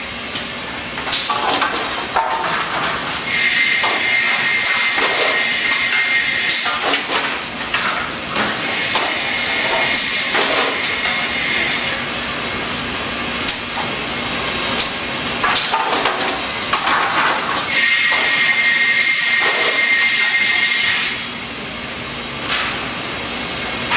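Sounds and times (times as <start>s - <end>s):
boards clattering on conveyor: 0.4s - 12.0s, 14.7s - 21.2s, 22.4s - 23.0s
saw machinery din and whine: 2.5s - 7.1s, 8.0s - 21.7s.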